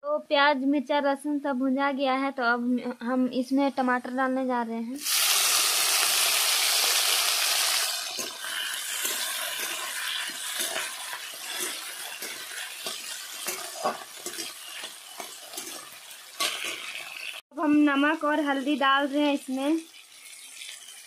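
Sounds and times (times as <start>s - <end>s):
tomatoes sizzling in hot oil: 5.0s - 21.0s
metal spatula scraping pan: 8.2s - 17.2s.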